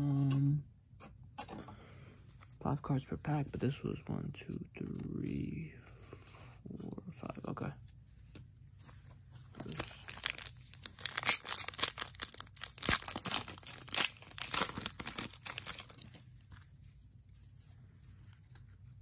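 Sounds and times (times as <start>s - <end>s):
foil wrapper tearing and crinkling: 9.5s - 16.2s.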